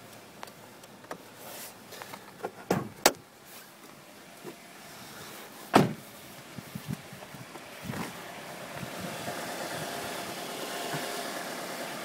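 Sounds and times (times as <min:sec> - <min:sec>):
hood clunks and thuds: 0:02.0 - 0:03.2, 0:05.7 - 0:08.2.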